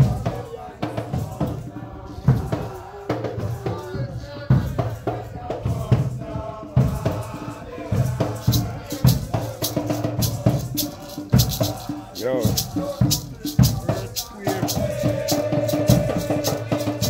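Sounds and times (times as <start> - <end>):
group chanting: 0.0 - 17.0
hand drums: 0.0 - 17.0
heavy bass drum beats: 0.0 - 17.0
high rattling strokes: 7.1 - 17.0.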